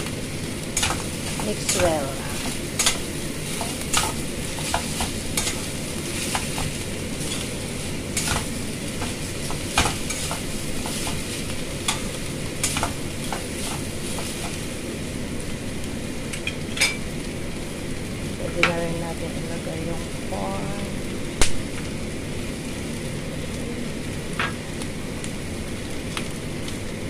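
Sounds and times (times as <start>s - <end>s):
rice sizzling in a pan: 0.0s - 27.0s.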